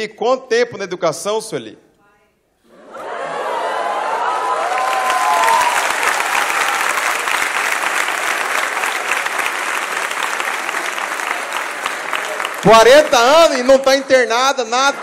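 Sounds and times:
people cheering: 2.7 - 15.0
audience clapping: 3.8 - 15.0.

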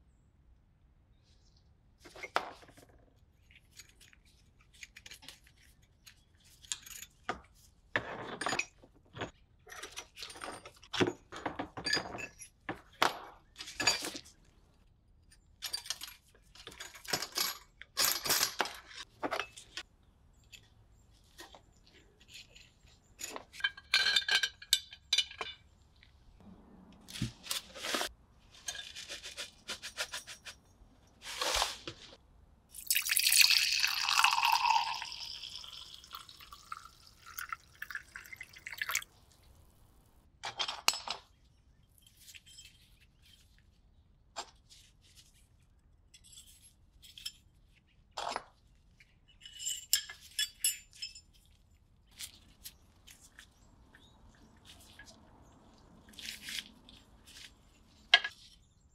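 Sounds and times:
water pouring and splashing: 32.8 - 39.6.

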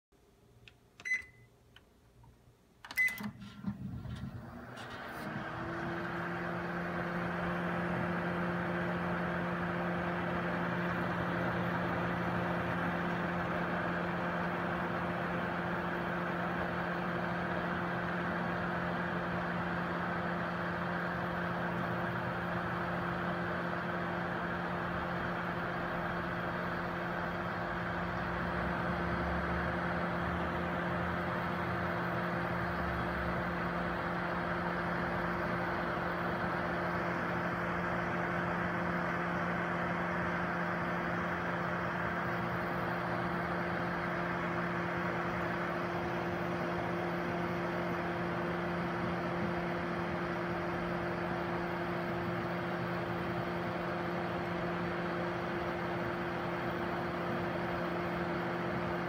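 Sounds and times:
microwave oven humming: 0.2 - 59.0
keypad beeps: 1.0 - 1.5, 2.9 - 3.4.

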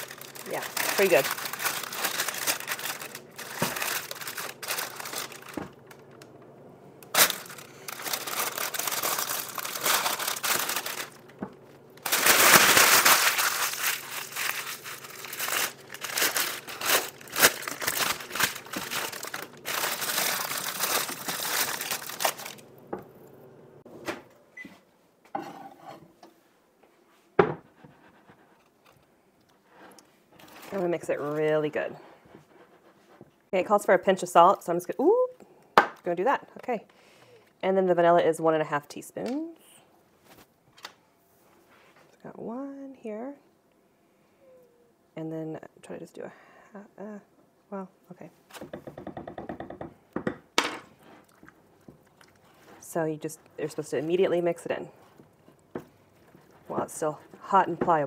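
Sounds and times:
paper crinkling: 0.0 - 6.2, 7.0 - 22.7
handling sounds: 0.0 - 6.3, 7.0 - 22.7.

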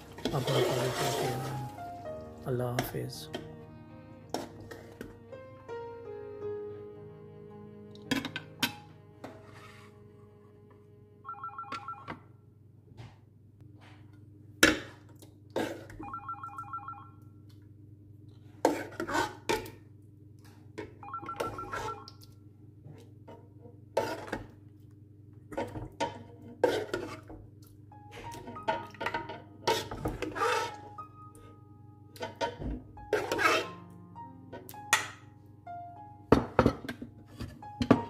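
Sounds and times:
telephone ringing: 11.2 - 12.4, 16.0 - 17.2, 21.0 - 22.1.

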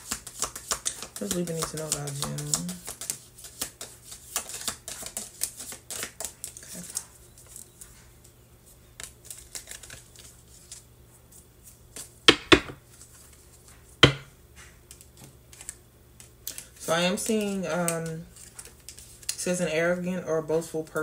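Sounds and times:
cards shuffling: 0.0 - 7.6, 9.0 - 10.8, 14.9 - 19.4
cards tapped on table: 12.3 - 12.8, 14.0 - 14.3.

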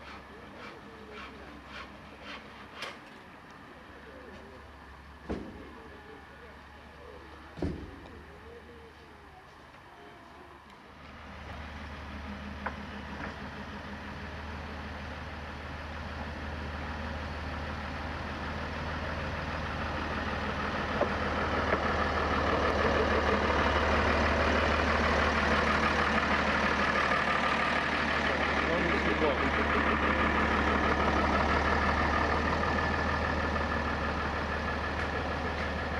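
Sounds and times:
locomotive engine idling: 0.0 - 35.9.

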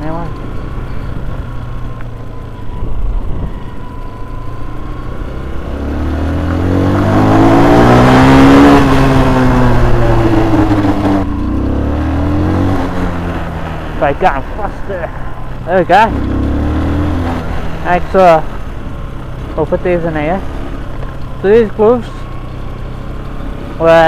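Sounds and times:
motorcycle engine revving: 0.0 - 24.0
wind noise on helmet: 2.7 - 3.8.

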